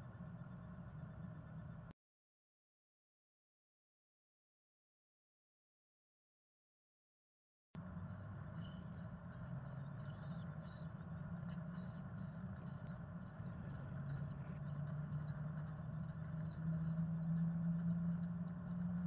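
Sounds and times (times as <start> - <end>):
low engine hum: 0.0 - 1.9, 7.8 - 19.0.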